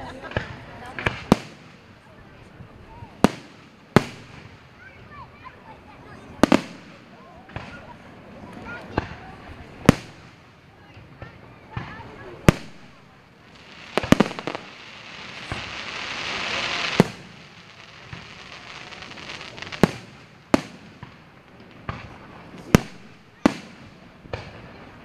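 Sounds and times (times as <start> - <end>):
fireworks bursting with bangs: 0.2 - 25.0
firework hiss: 1.0 - 4.8, 11.9 - 24.6.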